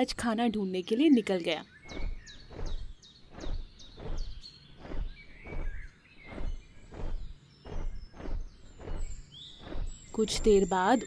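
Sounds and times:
birds chirping: 0.0 - 11.0
footsteps: 2.0 - 10.6.

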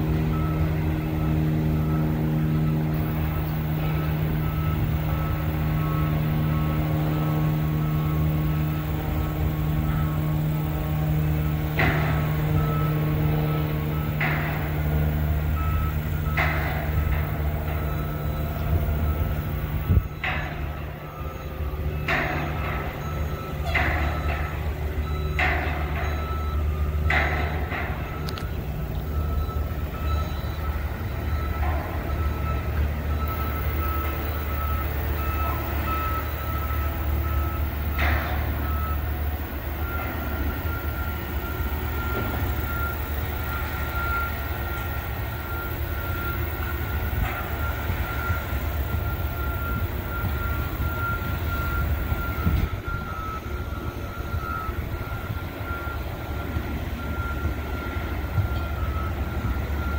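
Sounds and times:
low rumble of site machinery: 0.0 - 59.9
reversing alarm beeping: 0.0 - 59.9.

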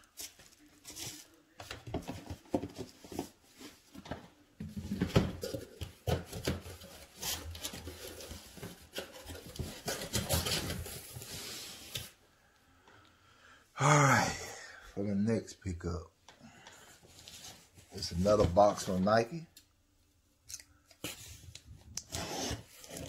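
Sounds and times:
cardboard boxes rustling and knocking: 0.9 - 11.3.

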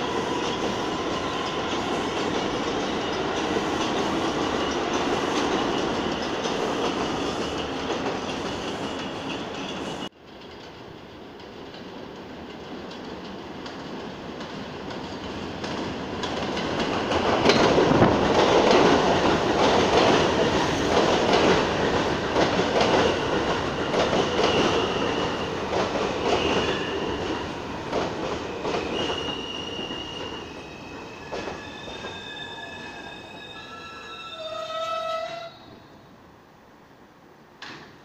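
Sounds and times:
train wheels clattering over rail joints: 12.5 - 29.4
metallic brake squeals: 28.8 - 35.8.

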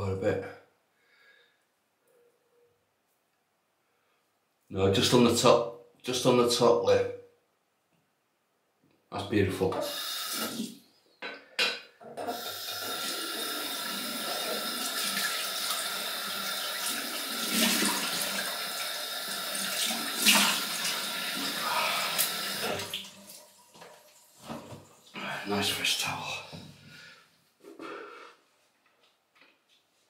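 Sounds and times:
water splashes: 19.6 - 24.6.

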